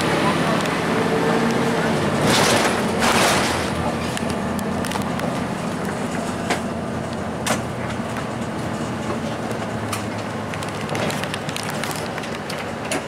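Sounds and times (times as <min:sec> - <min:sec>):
bus diesel engine drone: 0:00.0 - 0:13.0
road noise: 0:00.0 - 0:13.0.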